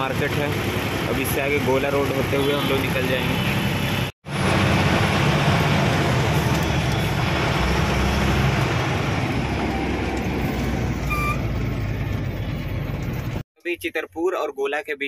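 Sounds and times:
truck engine and road noise: 0:00.0 - 0:14.8
high beep: 0:11.1 - 0:11.4.

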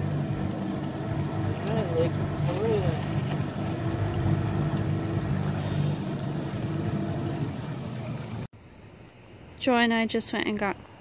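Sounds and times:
boat engine humming: 0:00.0 - 0:08.5.

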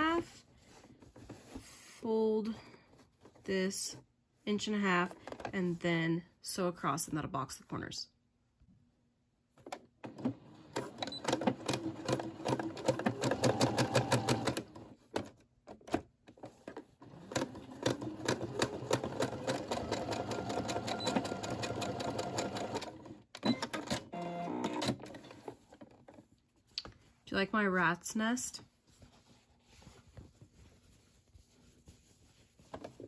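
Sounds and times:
sewing machine stitching: 0:10.0 - 0:14.9, 0:17.0 - 0:25.6.

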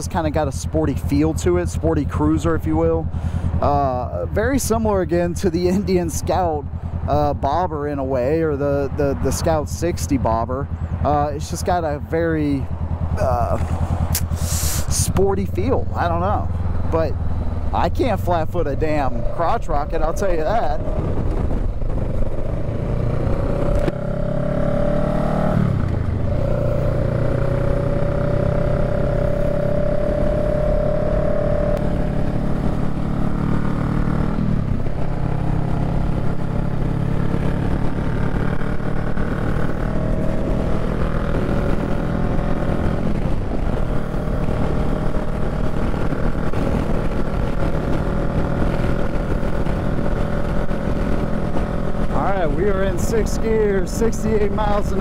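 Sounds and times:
motorcycle engine accelerating: 0:00.0 - 0:55.0
wind and road noise: 0:00.0 - 0:55.0.

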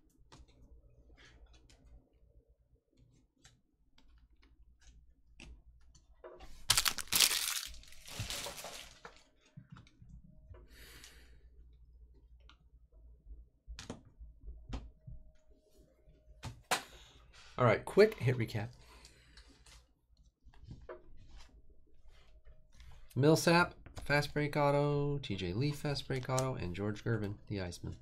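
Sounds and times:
packaging crinkling rustle: 0:06.5 - 0:09.4.

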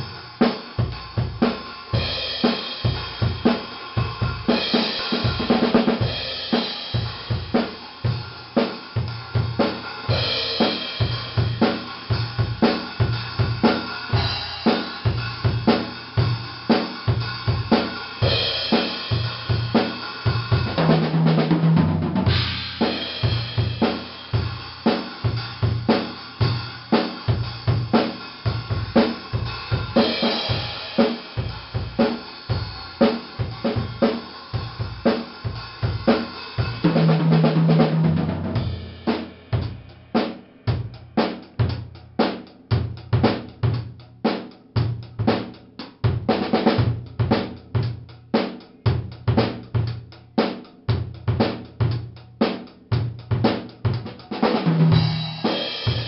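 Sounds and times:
drum kit playing a beat: 0:00.0 - 0:56.0.

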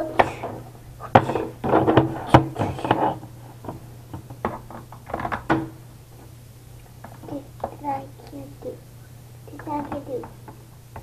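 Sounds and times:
boy making play-fight noises: 0:00.0 - 0:01.6.

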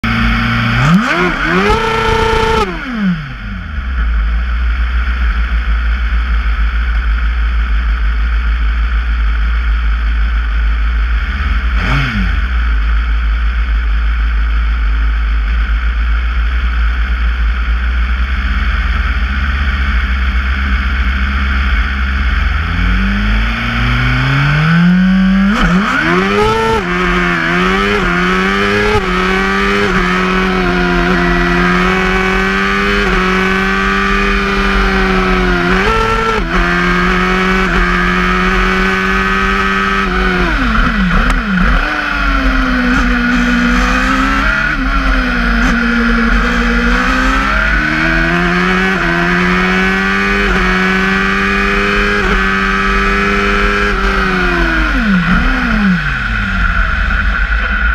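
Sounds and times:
racing car engine: 0:00.0 - 0:57.9.

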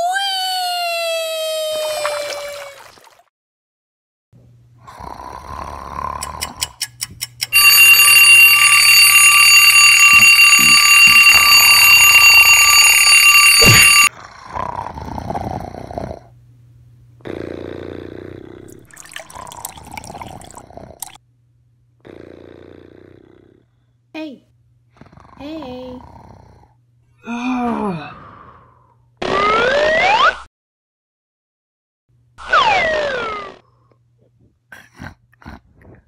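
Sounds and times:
alarm clock ringing: 0:07.5 - 0:14.1.

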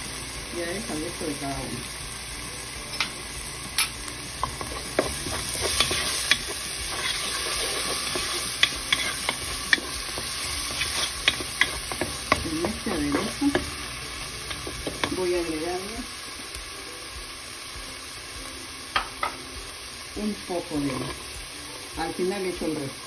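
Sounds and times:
food frying in oil: 0:00.0 - 0:23.0
wooden spoon scraping a pan: 0:04.4 - 0:13.8.

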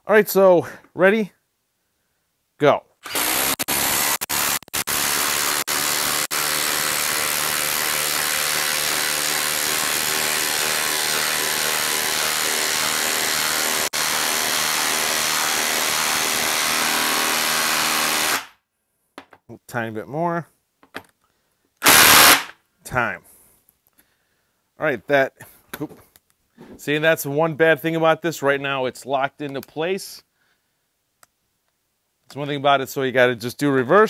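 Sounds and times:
impact driver driving screw: 0:03.0 - 0:15.1, 0:18.0 - 0:18.5, 0:21.8 - 0:22.5.

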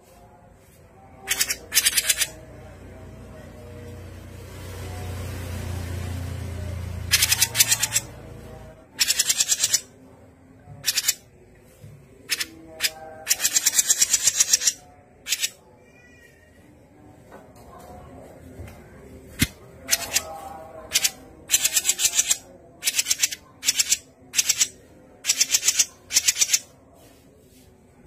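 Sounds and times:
bird chattering: 0:01.3 - 0:02.4, 0:07.1 - 0:08.1, 0:09.0 - 0:09.9, 0:10.8 - 0:11.2, 0:12.3 - 0:15.6, 0:20.9 - 0:26.6.

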